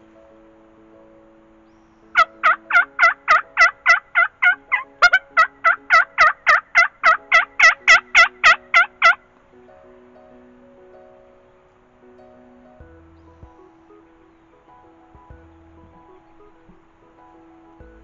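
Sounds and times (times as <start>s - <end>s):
soft background music: 0.0s - 18.0s
turkey calling: 2.1s - 9.2s.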